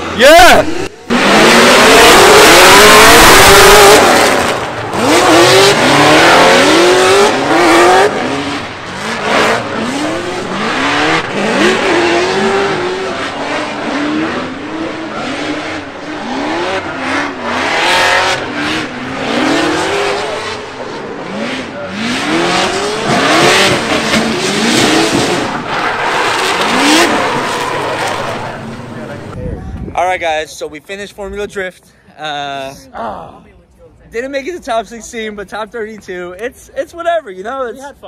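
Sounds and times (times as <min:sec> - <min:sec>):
car engines revving hard: 0:00.0 - 0:29.4.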